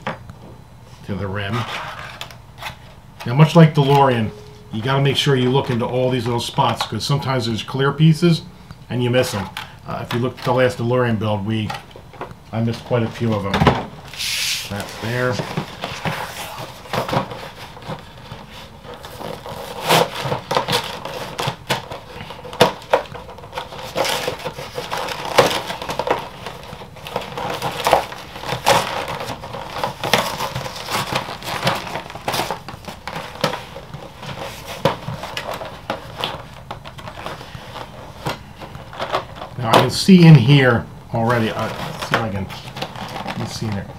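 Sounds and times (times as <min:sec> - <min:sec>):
plastic packaging crackling: 0:09.2 - 0:43.9.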